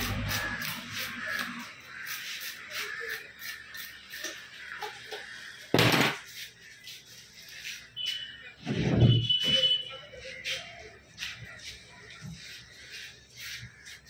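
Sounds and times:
knife scraping fish scales: 0.0s - 5.4s.

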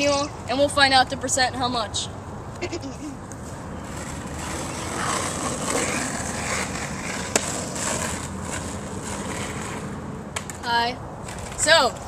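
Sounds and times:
skateboard wheels rolling on asphalt: 3.3s - 12.0s.

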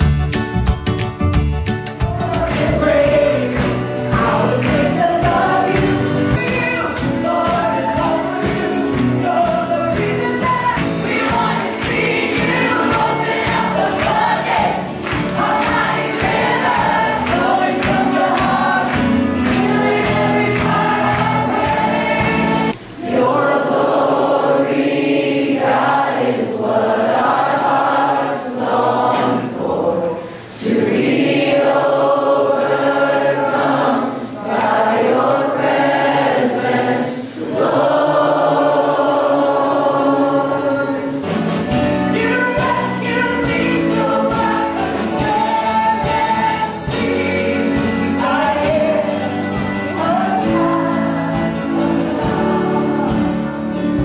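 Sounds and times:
live band playing: 0.0s - 23.0s, 41.0s - 54.0s
crowd singing: 1.9s - 54.0s.

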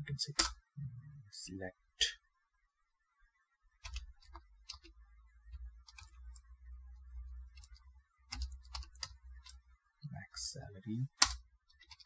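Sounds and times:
computer keyboard keys clicking: 3.8s - 4.9s, 5.8s - 6.5s, 7.5s - 9.6s, 11.2s - 12.0s.

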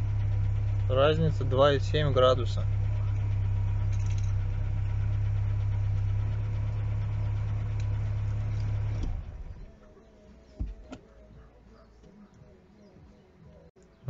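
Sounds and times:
car engine idling: 0.0s - 13.7s.

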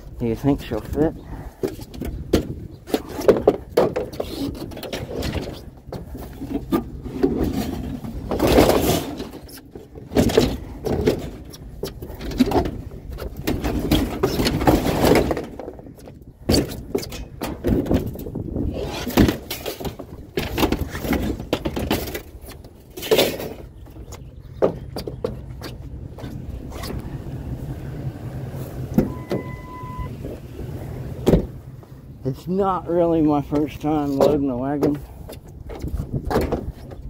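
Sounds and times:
scrap metal clattering: 1.2s - 15.9s, 16.5s - 23.8s
squeals of rubbing scrap: 4.1s - 6.8s, 18.6s - 19.8s.

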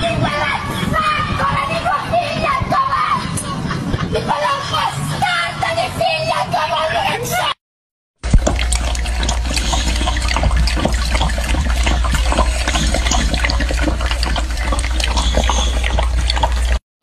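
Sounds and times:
dog lapping from metal bowl: 8.2s - 16.8s.

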